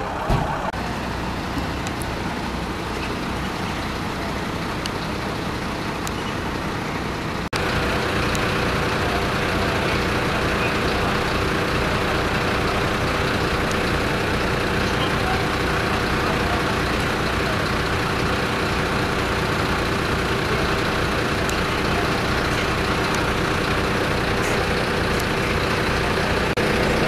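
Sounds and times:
large engine idling: 0:00.0 - 0:27.0.

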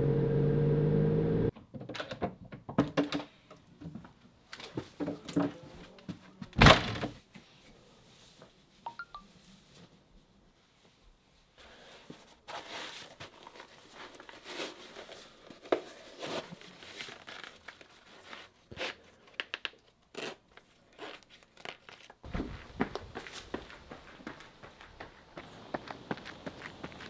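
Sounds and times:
shoes rustling and scuffing: 0:21.9 - 0:27.0
foot thump: 0:22.3 - 0:24.4.

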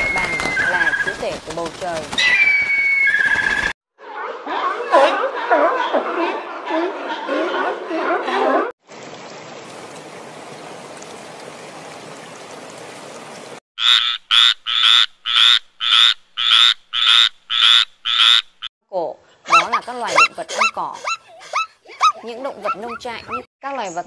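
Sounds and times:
tree frog croaking: 0:13.8 - 0:18.7
zebras barking: 0:19.5 - 0:23.5.

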